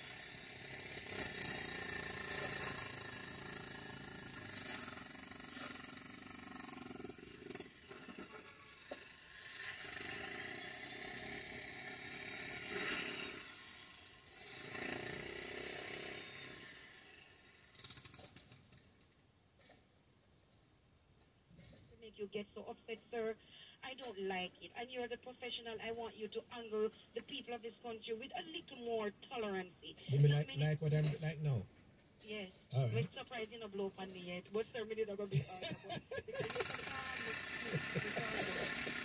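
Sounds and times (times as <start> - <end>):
jackhammer rattling: 0.0 - 18.9, 34.5 - 39.0
tools striking rubble: 35.6 - 39.0.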